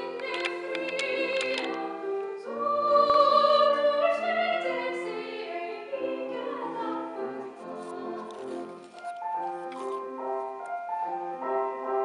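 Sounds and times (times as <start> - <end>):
soprano singing operatic: 0.0 - 8.9
grand piano: 0.0 - 12.0.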